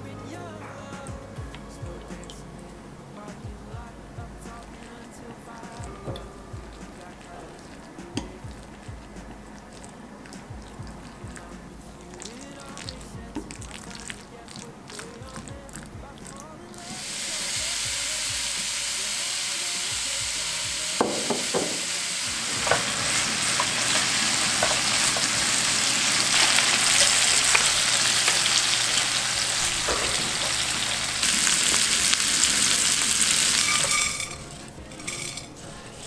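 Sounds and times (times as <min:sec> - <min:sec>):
meat sizzling in a frying pan: 0:16.9 - 0:34.4
utensil knocking and scraping pan: 0:21.0 - 0:25.4, 0:33.3 - 0:35.6.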